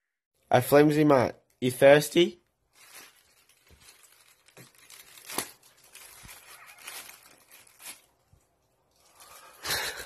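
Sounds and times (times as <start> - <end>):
plastic film crinkling: 2.3 - 10.0
sharp plastic crack: 2.8 - 8.2.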